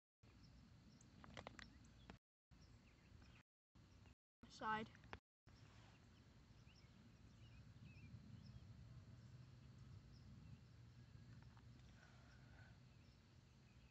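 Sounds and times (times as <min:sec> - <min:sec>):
faint bird chirps: 0:05.5 - 0:13.9.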